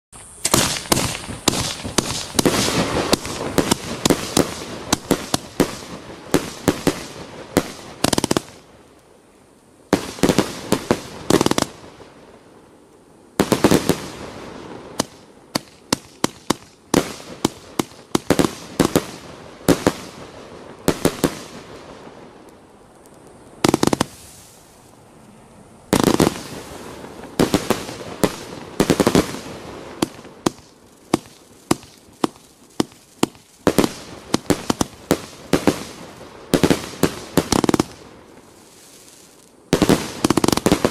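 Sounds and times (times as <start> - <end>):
firework cake bangs: 0.4 - 8.5.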